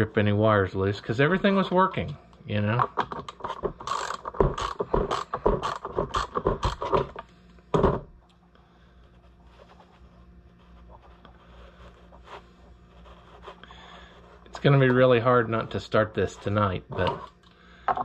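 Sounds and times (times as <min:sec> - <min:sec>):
tool clicking and scraping: 0:03.0 - 0:07.3, 0:16.4 - 0:17.4
faint handling sounds: 0:07.2 - 0:17.5.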